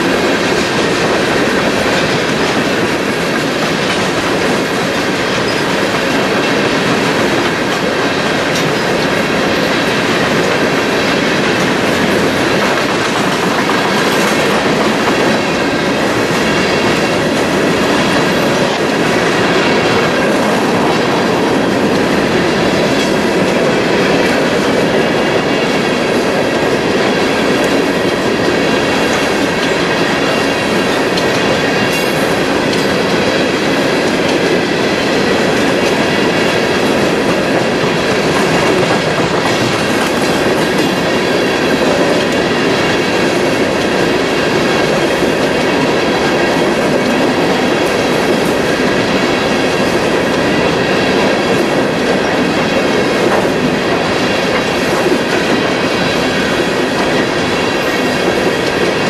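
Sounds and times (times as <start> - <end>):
freight train wheels rumbling: 0.0 - 59.0.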